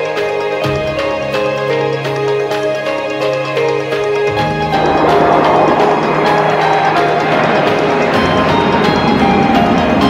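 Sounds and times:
deep bass: 0:04.3 - 0:09.1.

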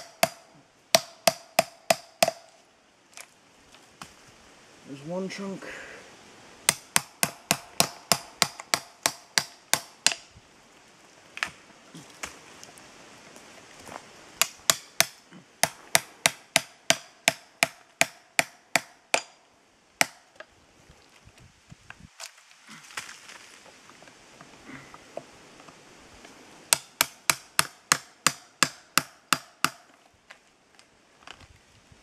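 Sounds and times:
hammer striking a chisel: 0:00.0 - 0:00.4, 0:01.0 - 0:02.4, 0:14.4 - 0:19.3, 0:26.7 - 0:29.8.

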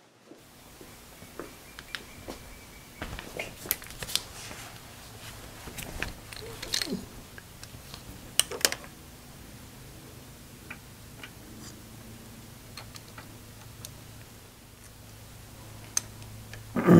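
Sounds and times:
rustling: 0:00.4 - 0:09.3
tools clicking and knocking: 0:05.8 - 0:07.7.

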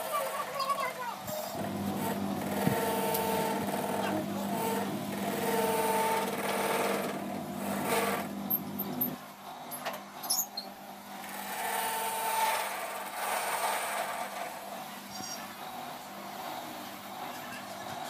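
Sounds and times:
electric motor humming: 0:01.5 - 0:09.2.

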